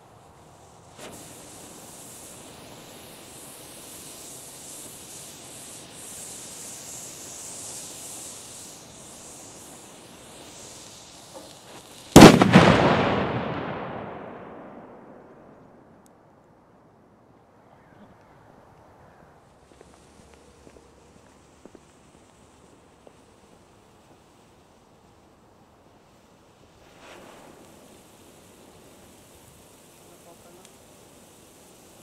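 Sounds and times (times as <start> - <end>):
firework hissing: 0.0 - 16.0, 19.4 - 32.0
loud firework bang: 11.4 - 15.9.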